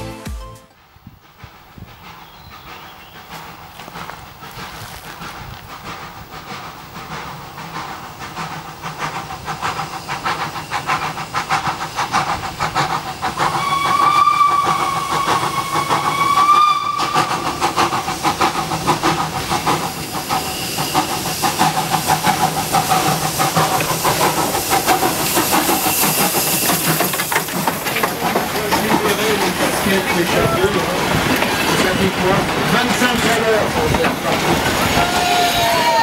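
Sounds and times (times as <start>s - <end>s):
steam locomotive exhaust beats: 0.7s - 36.0s
train carriages rolling: 0.7s - 36.0s
steam hissing: 0.8s - 36.0s
steam whistle: 13.5s - 17.4s, 35.0s - 36.0s.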